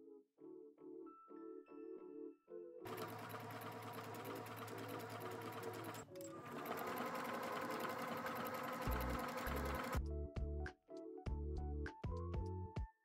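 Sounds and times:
sewing machine stitching: 2.9s - 10.0s.

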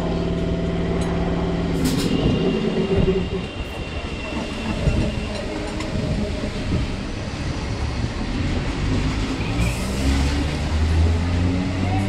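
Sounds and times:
train wheels rumbling on track: 0.0s - 12.0s.

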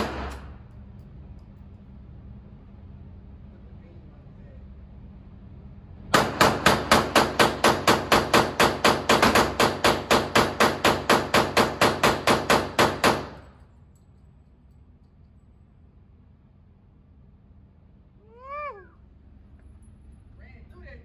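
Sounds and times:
pistol firing rapidly: 0.0s - 0.5s, 6.1s - 13.5s.

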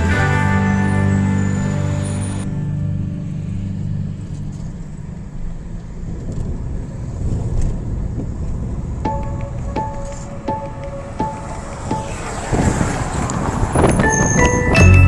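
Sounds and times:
background music: 0.0s - 5.0s, 9.1s - 12.3s, 14.1s - 15.0s
car engine and road rumble: 0.0s - 15.0s.

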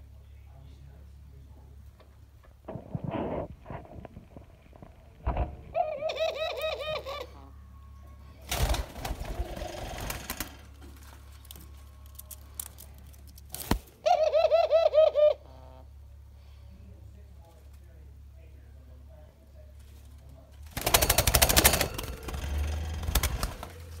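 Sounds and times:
rustling: 2.6s - 7.0s, 8.4s - 14.0s
doves calling: 2.7s - 16.4s.

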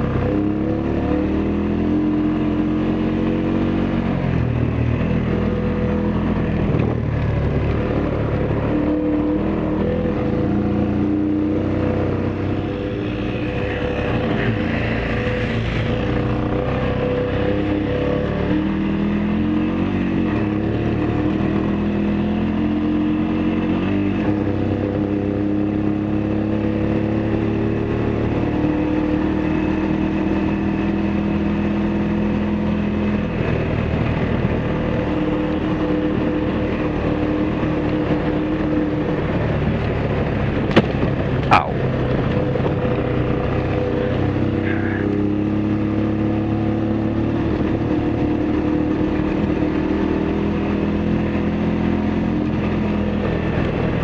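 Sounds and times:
atv engine running: 0.0s - 54.0s
tyre and wind noise: 33.4s - 43.9s.

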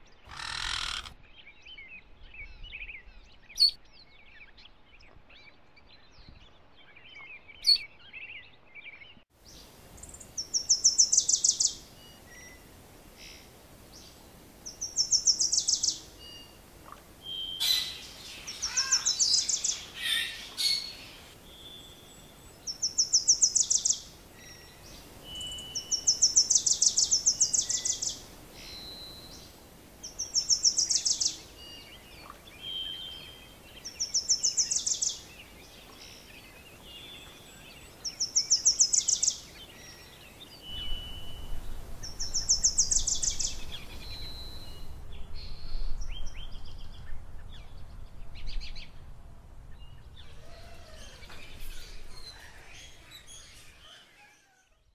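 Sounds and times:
other birds calling: 0.2s - 1.3s, 13.2s - 44.9s, 50.2s - 54.8s.

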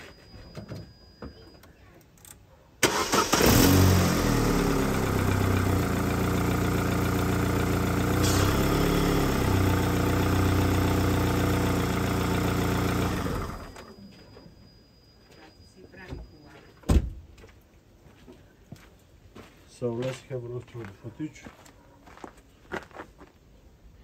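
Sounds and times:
car engine starting and idling: 2.8s - 13.9s.

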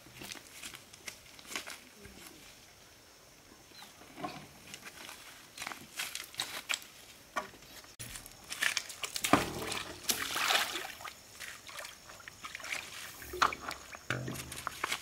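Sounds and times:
water sloshing in stony stream: 8.4s - 15.0s
plastic hose knocks and clatter: 13.4s - 14.9s.

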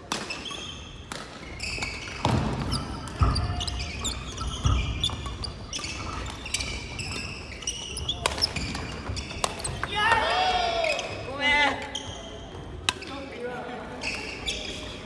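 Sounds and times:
rackets hitting shuttlecocks: 0.0s - 6.7s, 8.1s - 11.1s
sneakers squeaking on wooden floor: 0.2s - 15.0s.

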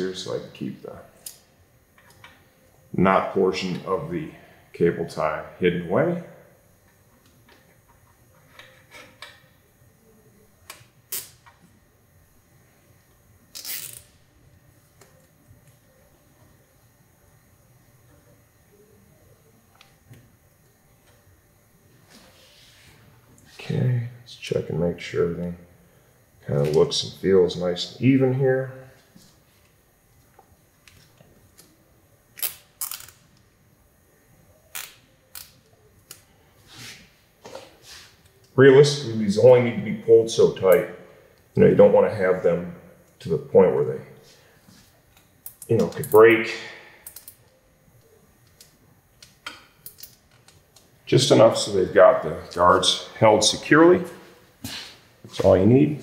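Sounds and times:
cable tie zip: 13.5s - 14.1s.

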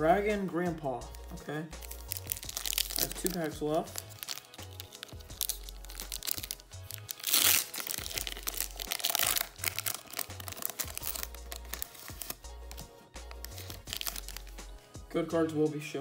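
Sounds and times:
foil wrapper crinkling: 1.8s - 14.6s
foil wrapper ripping open: 1.8s - 14.6s
background music with bass beat: 7.8s - 16.0s.

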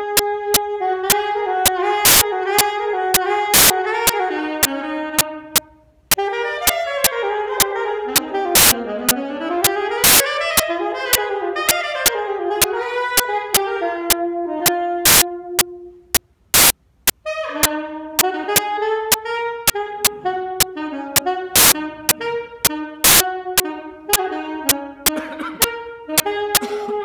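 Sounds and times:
solo saxophone: 0.0s - 27.0s
sharp clicks on steady beat: 0.1s - 6.2s, 7.0s - 10.7s, 12.6s - 15.3s, 16.1s - 17.2s, 18.2s - 26.7s.

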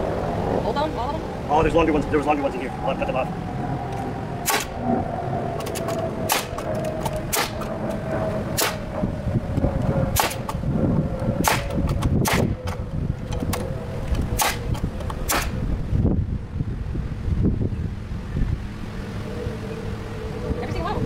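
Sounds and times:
nail gun firing into wood: 4.5s - 4.7s, 6.3s - 6.6s, 7.3s - 7.7s, 8.6s - 8.8s, 10.2s - 10.6s, 11.4s - 12.8s, 14.4s - 15.6s.

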